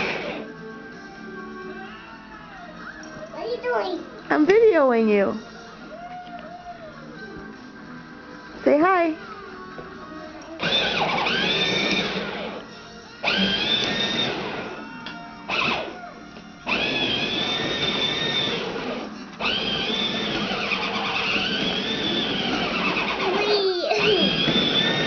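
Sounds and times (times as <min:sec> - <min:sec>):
toy train motor whirring: 0:10.6 - 0:12.6, 0:13.2 - 0:14.7, 0:16.7 - 0:25.0.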